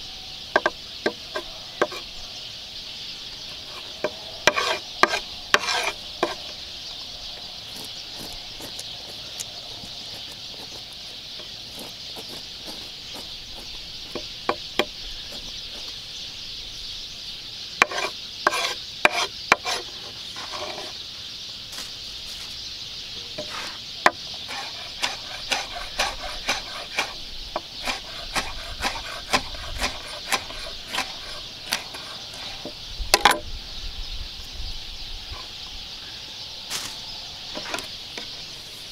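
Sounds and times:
steady high hiss: 0:00.0 - 0:29.4, 0:30.0 - 0:38.9
knife tapping and scraping board: 0:04.0 - 0:06.4.

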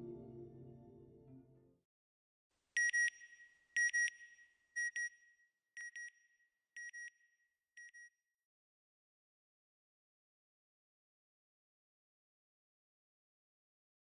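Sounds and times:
soft music: 0:00.0 - 0:01.8.

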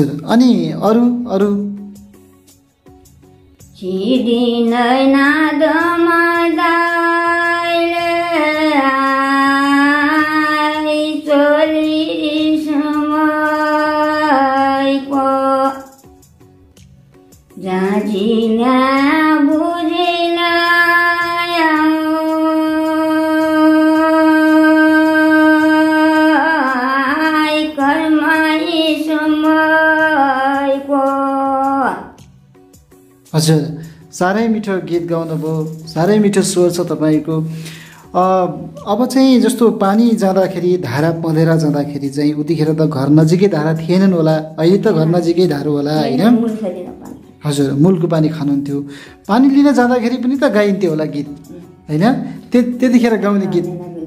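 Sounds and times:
woman singing unaccompanied: 0:03.7 - 0:16.0, 0:17.6 - 0:32.2.

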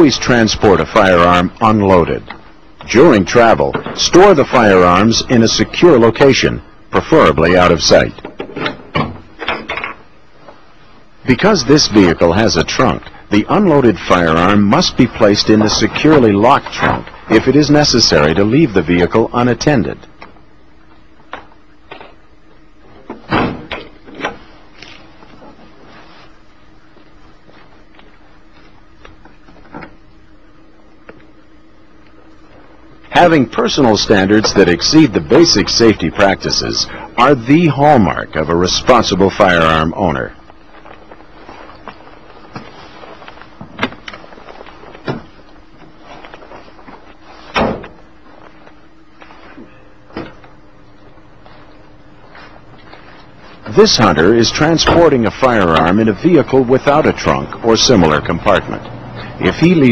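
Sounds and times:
van rear hatch slamming: 0:47.5 - 0:48.0.

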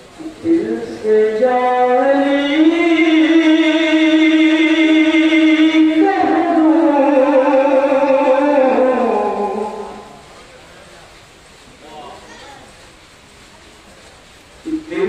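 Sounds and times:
man singing into a microphone: 0:00.2 - 0:10.3.

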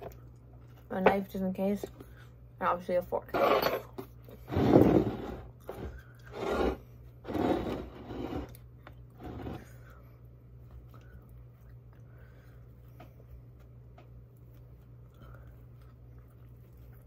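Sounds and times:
fork scraping on a plate: 0:06.2 - 0:08.6.

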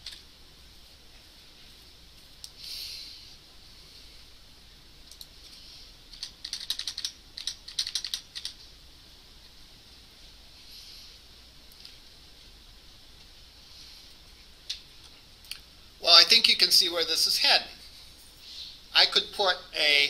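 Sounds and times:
soft rustle: 0:00.5 - 0:04.5
keyboard keystrokes: 0:06.1 - 0:08.6.

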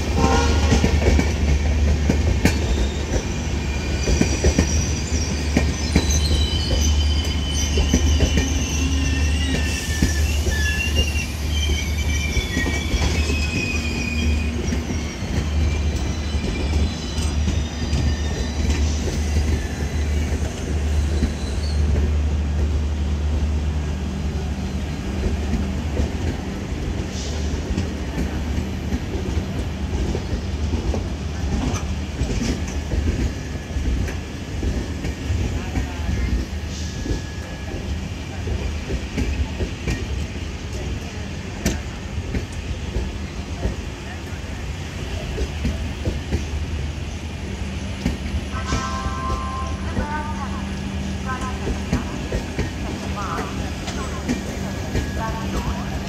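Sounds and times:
train coaches rumbling past: 0:00.0 - 0:56.0
high-pitched wheel squeals: 0:02.6 - 0:21.9.

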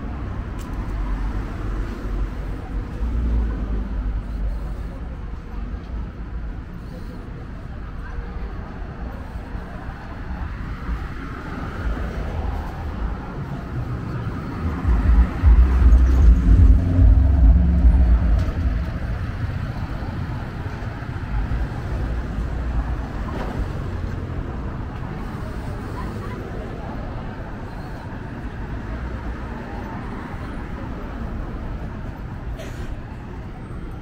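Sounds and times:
street traffic: 0:00.0 - 0:34.0
vehicle engine rumble passing: 0:10.0 - 0:34.0.

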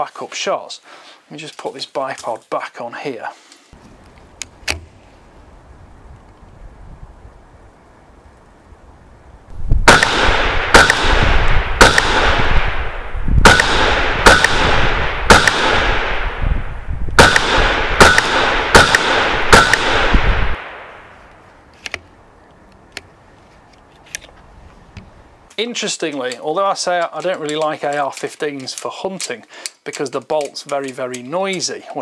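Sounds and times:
rifle shots: 0:09.8 - 0:16.4, 0:17.2 - 0:21.0.

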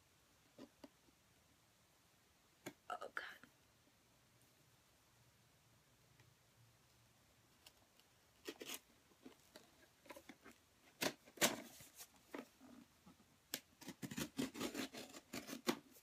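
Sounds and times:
cardboard box being cut open: 0:13.8 - 0:15.9.

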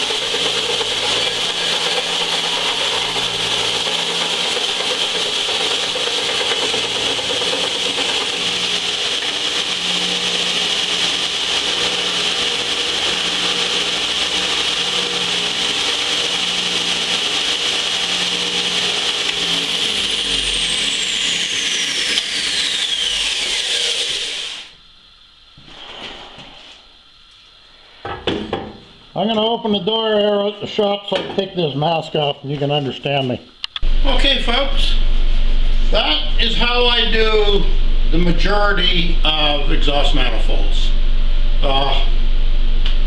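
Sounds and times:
belt sander grinding metal: 0:00.0 - 0:24.8
thin whine: 0:00.0 - 0:43.0.

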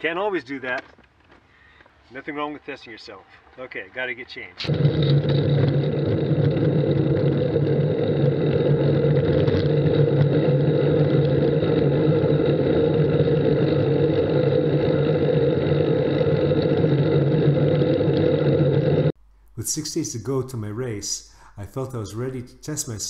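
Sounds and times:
bicycle road noise: 0:03.4 - 0:19.2.

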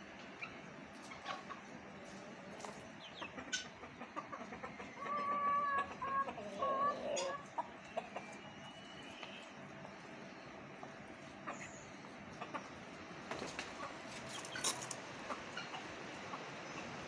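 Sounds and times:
rooster clucking: 0:01.1 - 0:08.3, 0:13.5 - 0:17.0.

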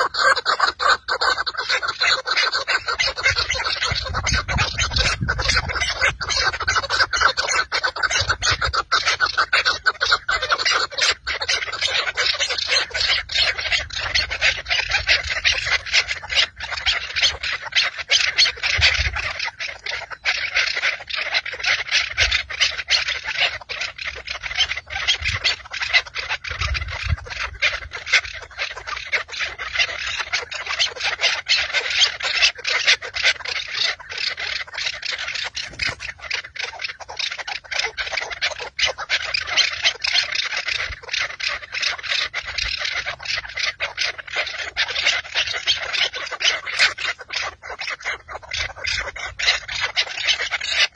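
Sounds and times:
partridges clucking chatter: 0:00.0 - 0:50.9
low wind rumbles: 0:03.2 - 0:07.2, 0:24.3 - 0:28.6.

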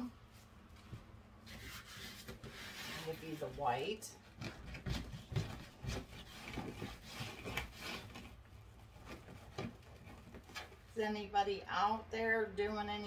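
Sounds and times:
mesh rustling and rubbing: 0:04.3 - 0:10.9.

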